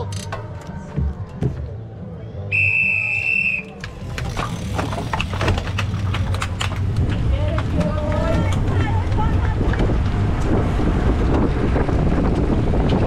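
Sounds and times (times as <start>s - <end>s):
whistle blast: 2.5s - 3.8s
rumble of bikes: 3.1s - 13.0s.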